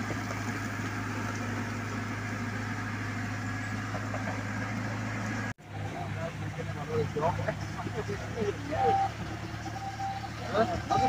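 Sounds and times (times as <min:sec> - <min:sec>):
backhoe digging: 0:00.0 - 0:06.2
diesel engine running: 0:00.0 - 0:11.0.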